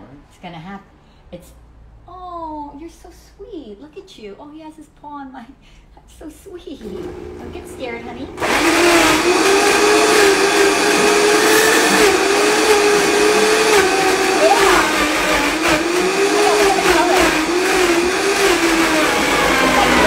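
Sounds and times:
blender motor whining: 6.8 - 20.0.

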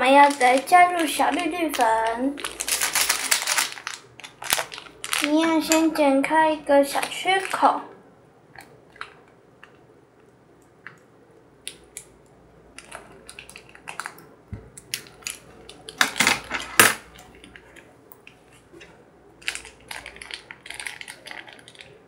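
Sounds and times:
plastic crinkling: 0.0 - 6.0, 6.8 - 7.8, 12.7 - 22.0
scissors cutting plastic sachet: 0.2 - 5.8.

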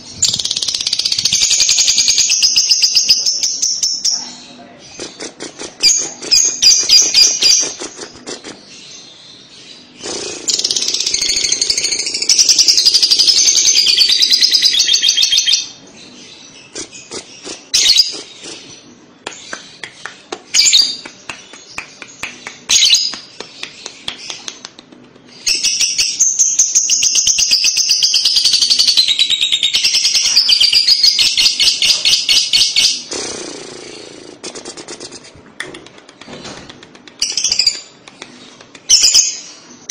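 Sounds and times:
bird chattering trills: 0.0 - 9.1, 9.8 - 39.6
bird chirps and ticking calls: 10.0 - 33.1, 34.4 - 39.6.

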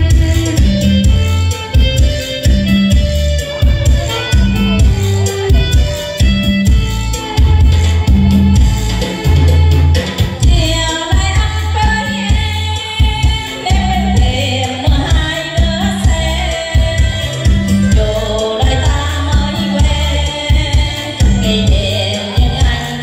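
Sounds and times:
backing music with bass beat: 0.0 - 23.0
woman singing into microphone: 7.8 - 23.0.

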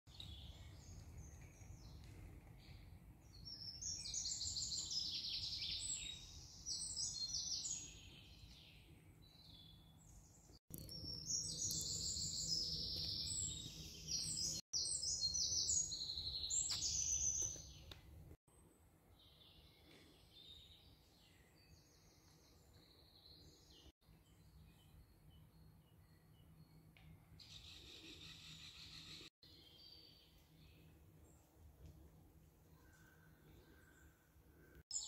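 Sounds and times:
songbirds singing: 0.1 - 18.0.

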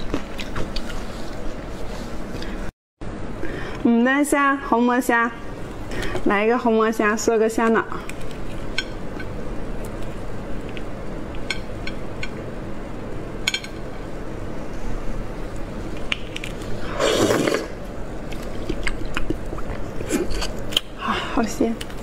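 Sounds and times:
loud slurp: 16.8 - 17.8.

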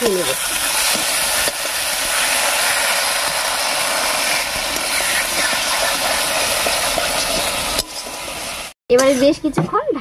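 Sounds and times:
spice paste sizzling in oil: 0.0 - 8.8
metal spatula scraping a pan: 4.1 - 9.4.

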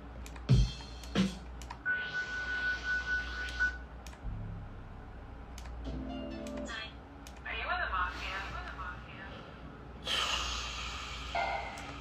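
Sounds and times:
low hum: 0.0 - 12.0
keyboard and mouse clicks: 0.2 - 1.8, 3.5 - 4.2, 5.5 - 5.8, 6.4 - 7.4.

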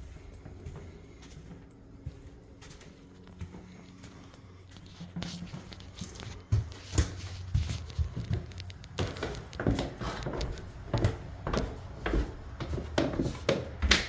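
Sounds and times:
footsteps thumping: 5.0 - 14.0.

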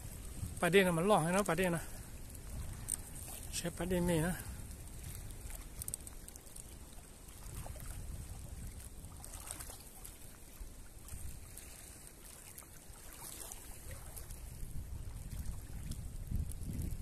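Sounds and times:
small waves lapping: 0.0 - 17.0
wind rumbling on microphone: 0.0 - 17.0.

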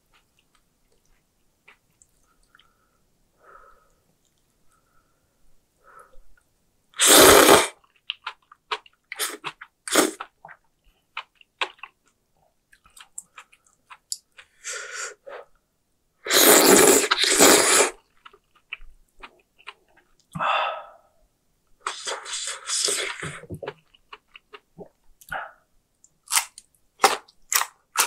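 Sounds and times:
wet chewing: 7.9 - 14.6
noodle slurping: 16.3 - 18.0.

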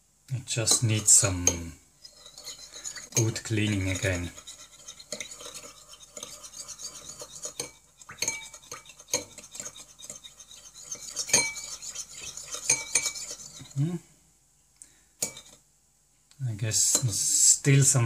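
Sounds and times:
teaspoon scraping glass bowl: 0.7 - 13.8, 15.2 - 15.6.

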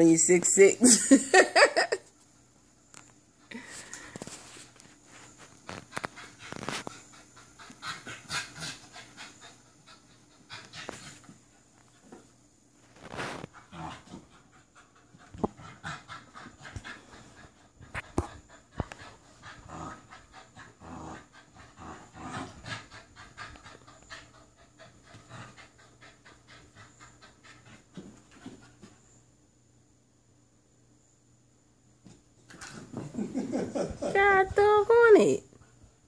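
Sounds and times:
puppy panting: 5.7 - 12.2, 13.5 - 29.0.

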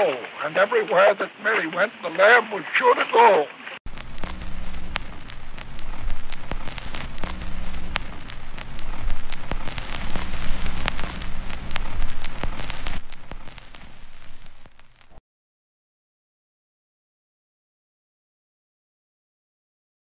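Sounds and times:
record crackles and pops: 0.0 - 15.2
low hum: 3.9 - 15.2.

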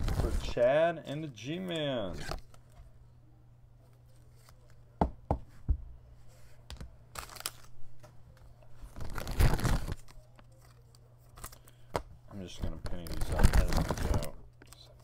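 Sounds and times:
plastic packaging crinkling and tearing: 7.1 - 7.8, 8.8 - 11.8, 12.6 - 15.0.

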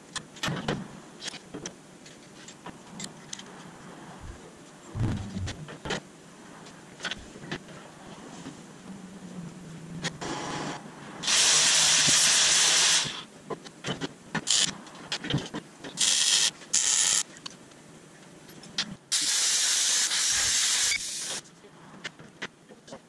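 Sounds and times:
loud gas hissing: 10.2 - 13.3, 19.1 - 21.4.

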